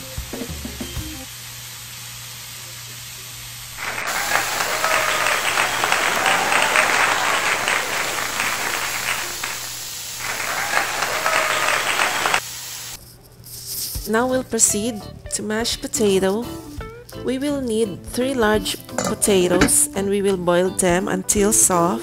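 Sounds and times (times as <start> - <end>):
crowd applause: 3.8 - 12.4.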